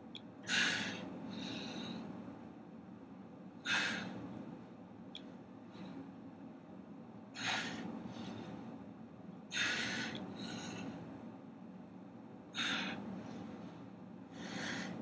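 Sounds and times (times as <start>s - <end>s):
man's sharp forceful breaths: 0.4s - 2.2s, 3.6s - 4.3s, 7.3s - 8.8s, 9.5s - 11.2s, 12.5s - 15.0s.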